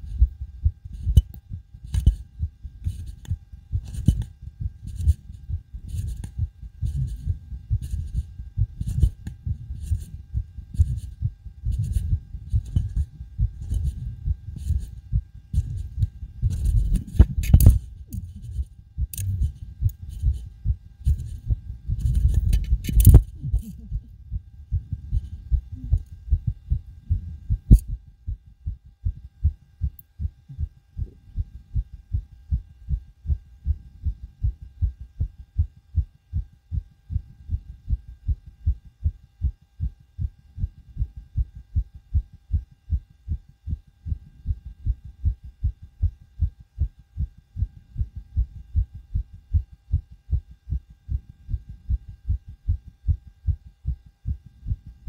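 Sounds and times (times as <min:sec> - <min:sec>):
heartbeat through stethoscope: 0:00.0 - 0:55.0
knocks and rubbing noise: 0:10.8 - 0:23.8.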